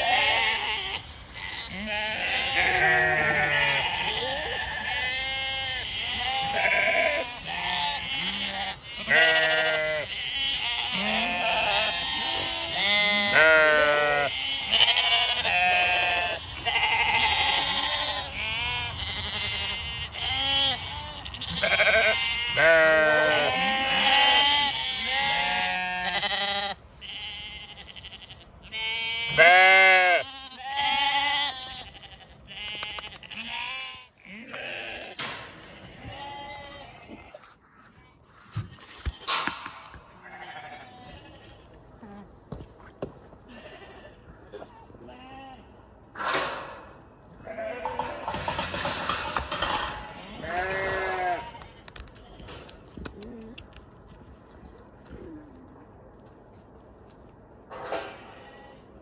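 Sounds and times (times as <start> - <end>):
sheep bleating: 0.0 - 37.4, 40.2 - 42.2, 43.5 - 45.8, 47.3 - 48.6, 49.5 - 52.6.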